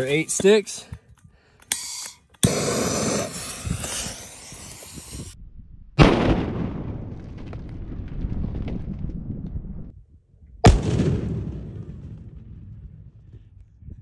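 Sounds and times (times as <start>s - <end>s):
dynamite blast: 6.0s - 9.9s, 10.6s - 13.2s.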